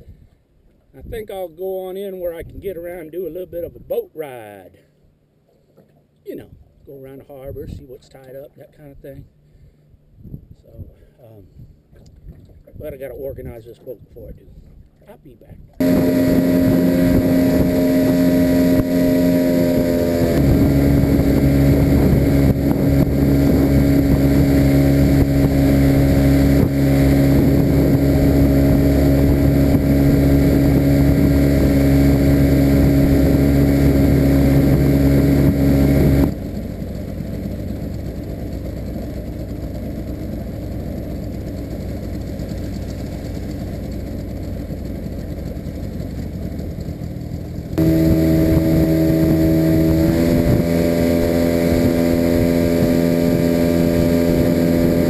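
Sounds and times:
water and wind noise: 0:08.8 - 0:55.0
outboard motor running: 0:15.8 - 0:55.0.

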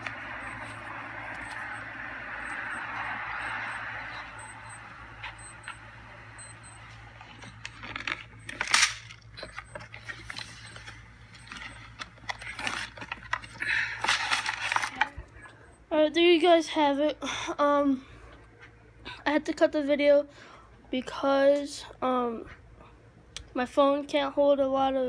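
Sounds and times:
phone handling rustling: 0:07.2 - 0:15.2.

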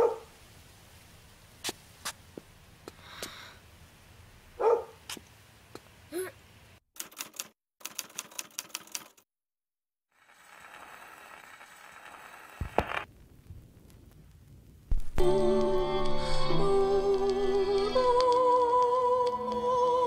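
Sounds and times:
rapid typewriter-like clicking: 0:07.0 - 0:09.2
music from record player: 0:15.2 - 0:20.0.

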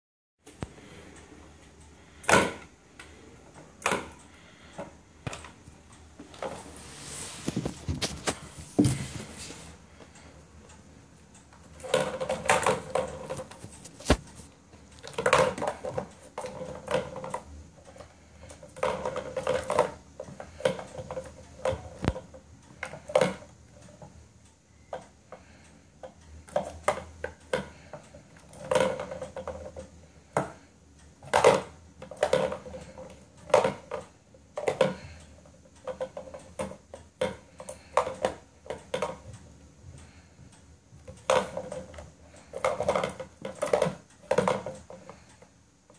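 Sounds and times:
balls rattling around plastic track: 0:11.5 - 0:24.1, 0:26.4 - 0:39.4, 0:41.0 - 0:45.3.

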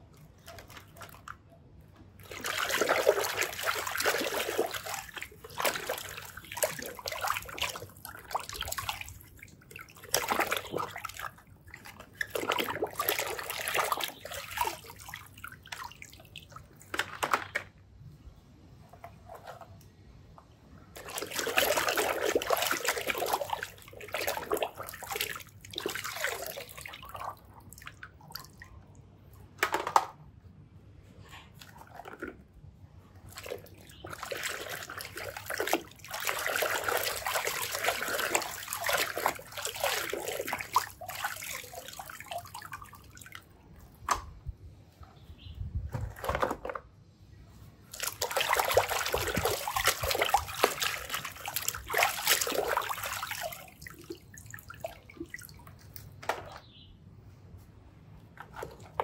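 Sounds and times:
hands sloshing through muddy water: 0:02.2 - 0:16.7, 0:21.0 - 0:27.9, 0:33.3 - 0:43.4, 0:47.9 - 0:55.9.

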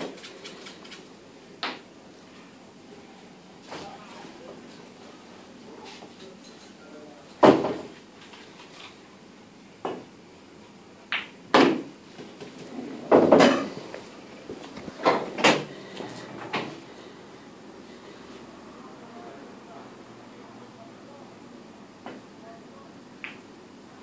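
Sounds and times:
pool balls clacking: 0:11.1 - 0:16.8, 0:23.2 - 0:23.4.

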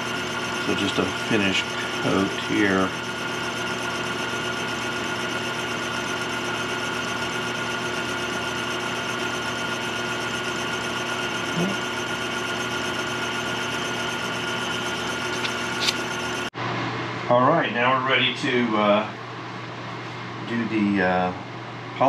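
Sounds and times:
lathe motor humming: 0:00.0 - 0:16.5.

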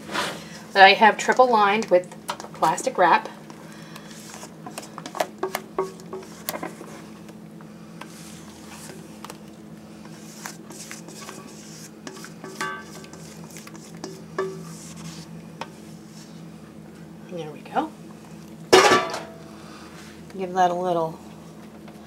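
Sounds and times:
steady low hum: 0:00.0 - 0:22.0
spatula scraping metal bowl: 0:10.3 - 0:15.3.

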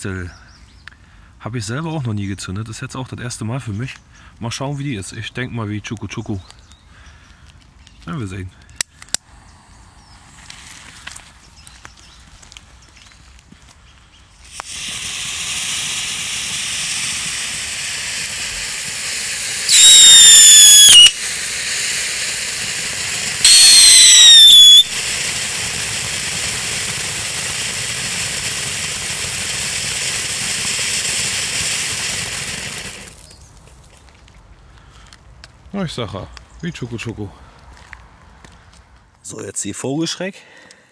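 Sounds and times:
firework fountain hissing: 0:14.4 - 0:33.5
loud firework whistle: 0:14.5 - 0:33.1.

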